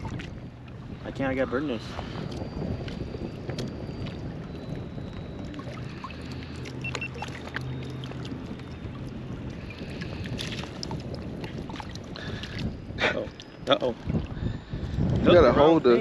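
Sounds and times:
water lapping around legs: 0.0s - 0.8s, 5.4s - 14.4s
wind on microphone: 0.0s - 16.0s.

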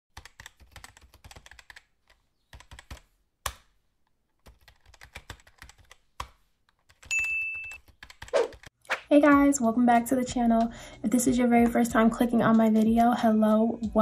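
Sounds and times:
computer keyboard typing: 0.2s - 3.1s, 4.4s - 8.8s.

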